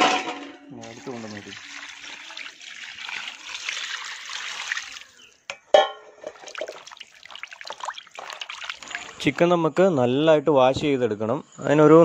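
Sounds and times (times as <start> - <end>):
water pouring into a basin: 0.8 - 5.4, 6.3 - 9.4
hands sloshing in water: 6.4 - 9.3.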